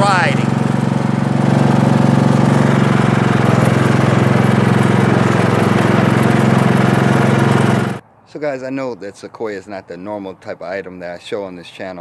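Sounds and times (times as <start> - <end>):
lawn tractor engine running: 0.0 - 8.0.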